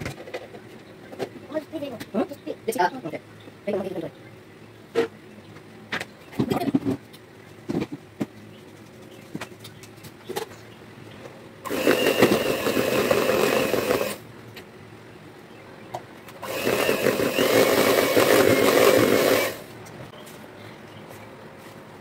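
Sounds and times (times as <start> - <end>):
beaters churning batter: 11.7 - 14.2, 16.3 - 19.6
electric hand mixer running: 11.7 - 14.2, 16.4 - 19.7.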